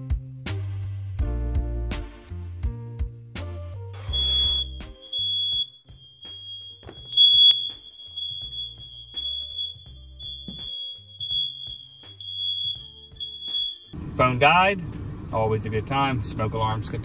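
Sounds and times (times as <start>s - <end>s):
smoke alarms beeping: 4.0s - 14.0s.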